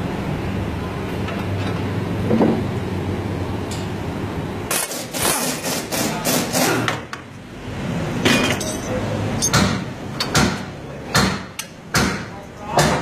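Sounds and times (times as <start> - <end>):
metallic clanks of tools: 8.2 - 10.4.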